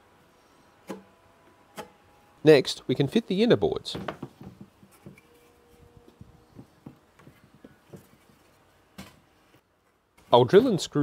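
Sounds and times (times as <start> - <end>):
wooden boards knocking: 3.9 - 5.2, 6.2 - 8.2.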